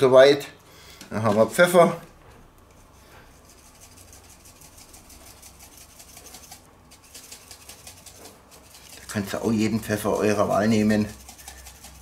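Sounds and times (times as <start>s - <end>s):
pepper mill grinding: 3.5s - 12.0s.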